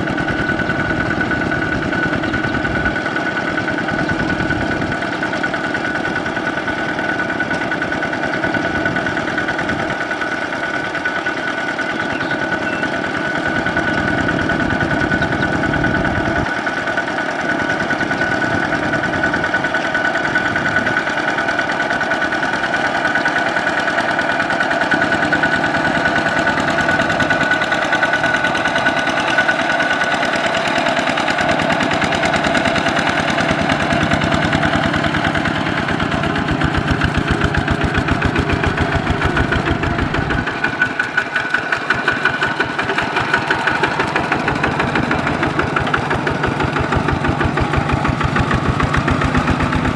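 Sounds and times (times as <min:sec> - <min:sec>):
diesel tractor engine running: 0:00.0 - 0:49.9
wheels churning water: 0:00.0 - 0:49.9
constant high tone: 0:11.9 - 0:13.0.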